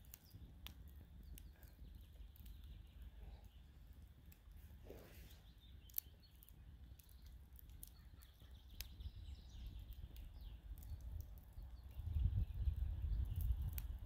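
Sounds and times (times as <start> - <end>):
faint bird chirps: 0.0 - 13.8
small sharp clicks: 5.8 - 8.9.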